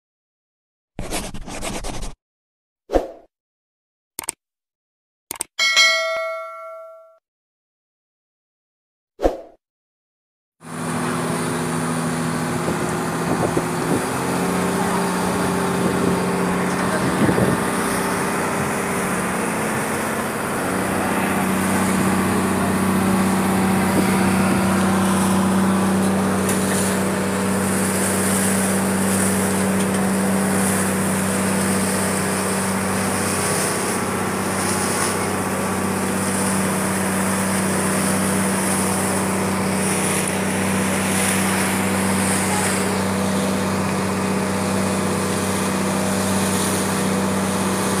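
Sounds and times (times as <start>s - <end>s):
boat engine running: 10.6s - 48.0s.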